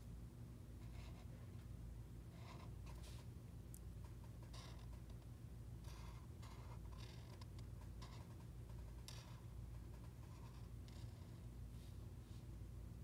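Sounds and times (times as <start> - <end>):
steady low hum: 0.0 - 13.0
marker scratching on paper: 0.8 - 1.3, 2.3 - 3.3, 4.3 - 5.2, 5.8 - 11.4.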